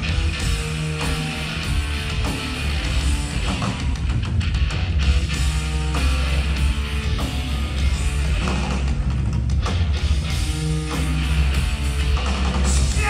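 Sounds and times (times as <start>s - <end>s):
live heavy rock band: 0.0s - 13.0s.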